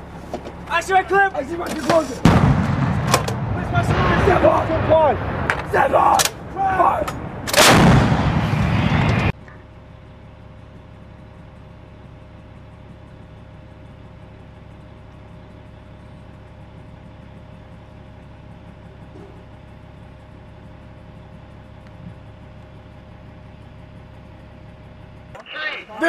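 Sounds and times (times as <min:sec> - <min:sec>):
low hum: 0:00.0 - 0:26.0
howitzer blast: 0:00.8 - 0:09.4.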